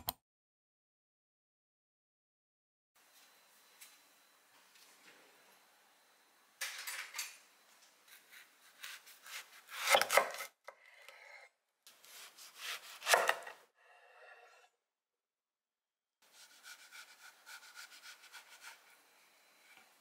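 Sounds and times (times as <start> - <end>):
knife slicing melon rind: 8.1 - 11.3, 11.9 - 13.6, 16.3 - 19.0.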